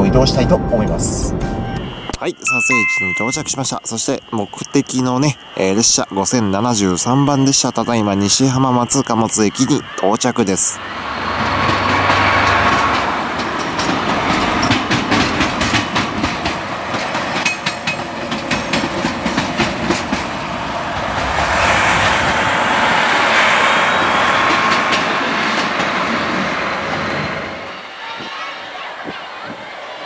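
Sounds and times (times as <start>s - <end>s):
train wheels clattering over rail joints: 11.3s - 20.5s.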